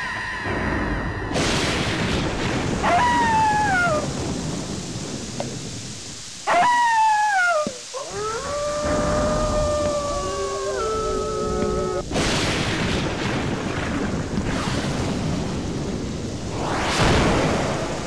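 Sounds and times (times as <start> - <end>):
rain-like hiss: 0.0 - 18.0
thunder crash: 0.4 - 5.9, 8.8 - 18.0
animal howling: 2.8 - 4.0, 6.5 - 12.0.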